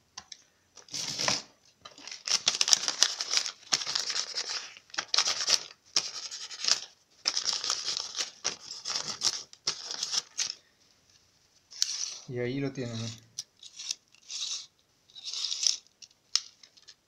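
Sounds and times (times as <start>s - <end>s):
tape measure blade rasping: 12.9s - 15.8s.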